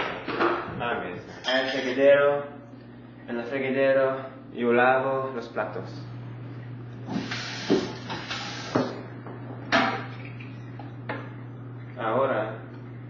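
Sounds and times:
steady low hum: 0.0s - 13.0s
tap water rushing: 7.0s - 9.1s.

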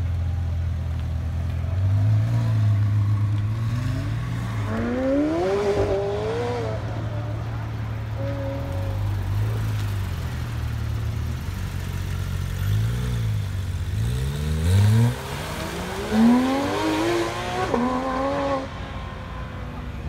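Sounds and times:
car engine revving and accelerating: 1.8s - 9.8s, 12.6s - 19.4s.

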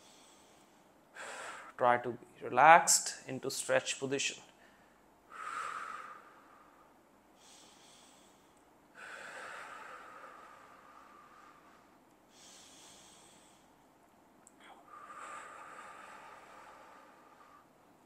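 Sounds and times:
man breathing deeply: 0.0s - 1.8s, 4.6s - 13.8s, 14.6s - 17.9s.

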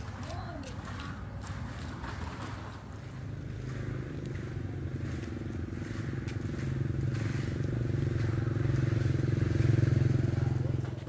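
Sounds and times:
motorcycle engine running: 1.4s - 11.0s.

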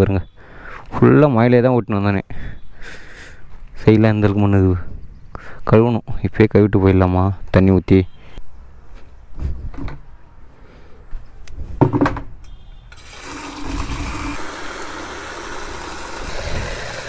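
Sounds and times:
knocks: 11.8s - 12.3s
water pouring and splashing: 13.0s - 17.0s.

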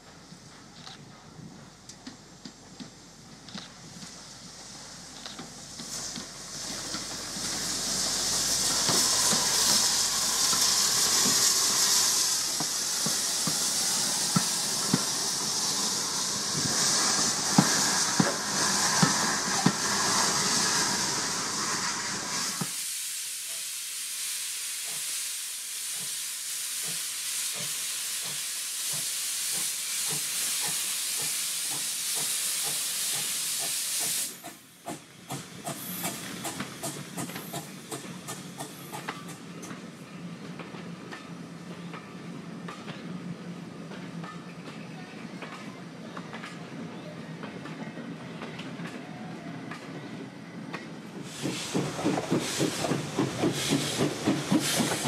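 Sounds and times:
hiss of escaping steam: 3.8s - 39.7s, 50.8s - 55.0s
wheels clicking on track: 50.7s - 55.0s.

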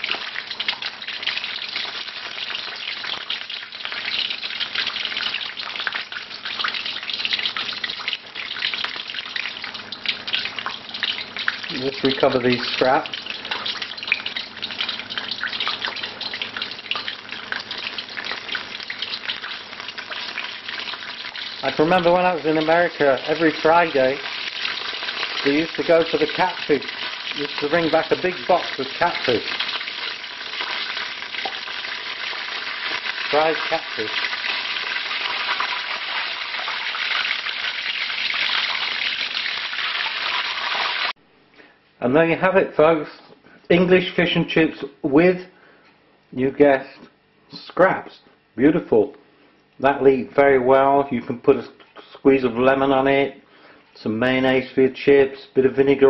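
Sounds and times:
fish frying in hot oil: 0.0s - 41.2s.

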